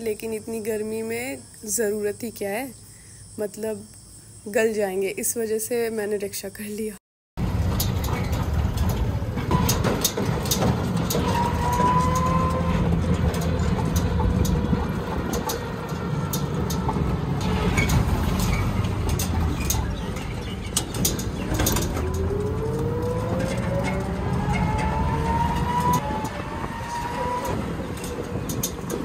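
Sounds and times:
frame rattling clicks: 0:07.4 - 0:26.4, 0:27.2 - 0:29.0
road and wind rumble: 0:07.4 - 0:29.0.

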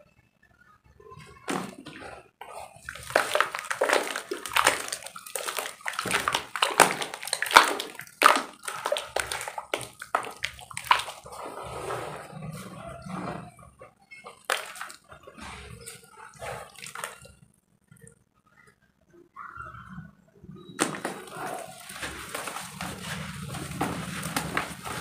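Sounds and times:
hands splashing in water: 0:01.5 - 0:11.4, 0:14.3 - 0:15.2, 0:15.8 - 0:17.3, 0:20.8 - 0:25.0.

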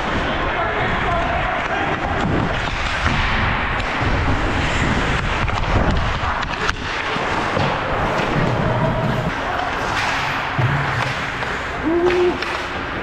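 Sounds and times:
wind rumble on microphone: 0:00.0 - 0:06.9
skates scraping on ice: 0:00.0 - 0:13.0
stick hitting puck: 0:04.6 - 0:13.0.

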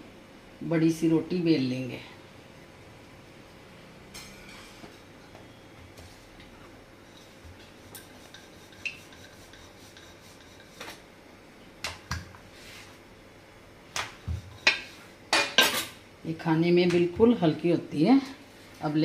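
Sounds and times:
rolling pin rolling dough: 0:07.0 - 0:11.0.

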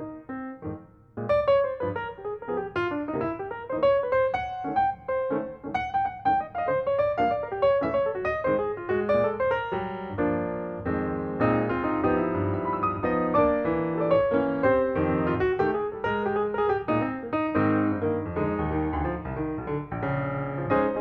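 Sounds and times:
lively piano music: 0:00.0 - 0:21.0.

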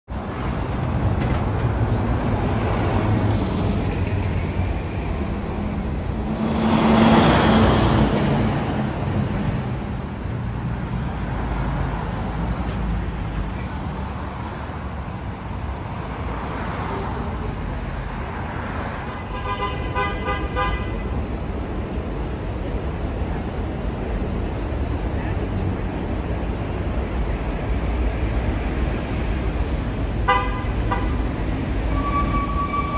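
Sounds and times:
traffic passing: 0:00.1 - 0:32.9
vehicle horn: 0:19.1 - 0:21.1, 0:30.2 - 0:32.9.

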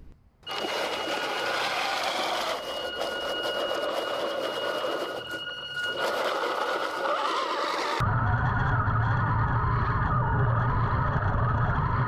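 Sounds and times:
toy tank motors whining: 0:00.4 - 0:08.0
thin high whine: 0:00.4 - 0:08.2.

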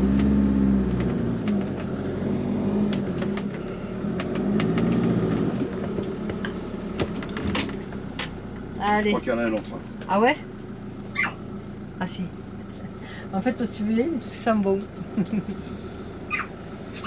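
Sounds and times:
motorhome engine running: 0:00.0 - 0:17.0.

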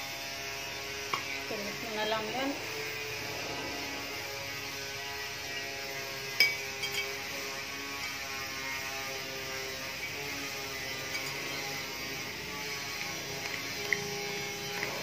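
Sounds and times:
metal spoon clinking ceramic dish: 0:06.4 - 0:07.1.

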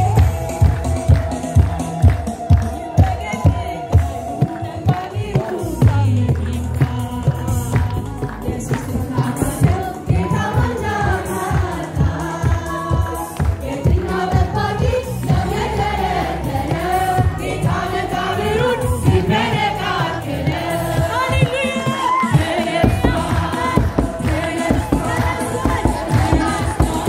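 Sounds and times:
choir singing worship song: 0:00.0 - 0:27.0
steady low beat: 0:22.8 - 0:27.0.

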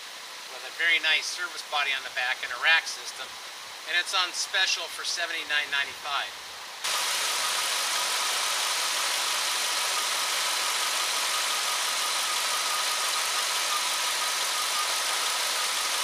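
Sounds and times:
faint steady whine: 0:00.0 - 0:16.0
engine idling: 0:06.8 - 0:16.0.

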